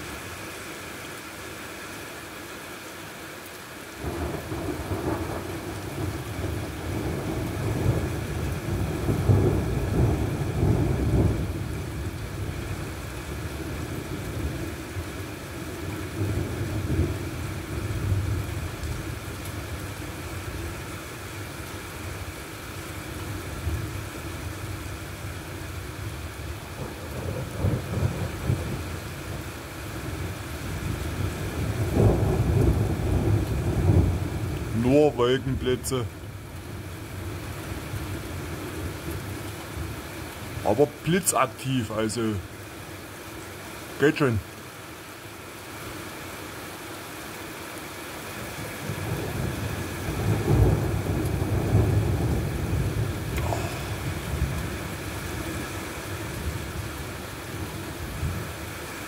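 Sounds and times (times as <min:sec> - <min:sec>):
rain hiss: 0:00.0 - 0:59.0
rolling thunder: 0:04.0 - 0:11.9, 0:31.4 - 0:34.6, 0:48.8 - 0:55.6.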